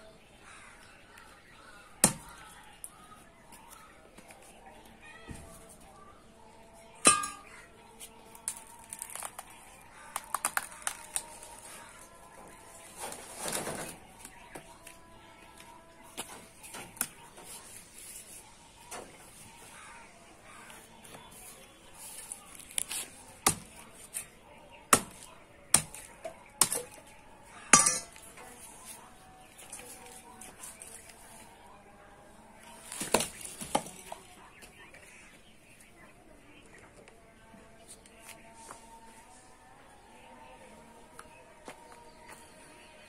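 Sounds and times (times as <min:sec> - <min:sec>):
metal blade clanging: 0:07.0 - 0:07.6, 0:27.7 - 0:28.2.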